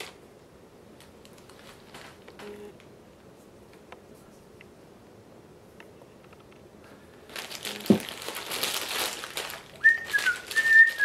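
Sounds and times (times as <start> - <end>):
plastic packaging crinkling: 0.0 - 0.2, 1.0 - 2.4, 7.2 - 11.0.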